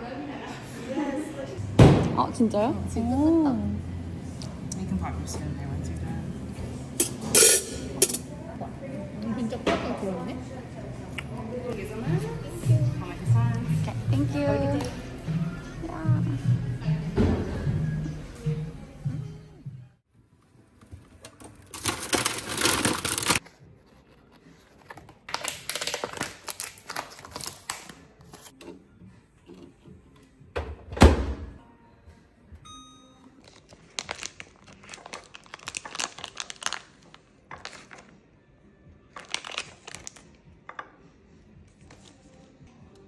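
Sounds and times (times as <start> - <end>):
plastic wrapping crinkling and tearing: 21.8 - 23.4, 24.8 - 28.5, 33.4 - 38.1, 39.2 - 40.4
keypad beeps: 32.6 - 33.3.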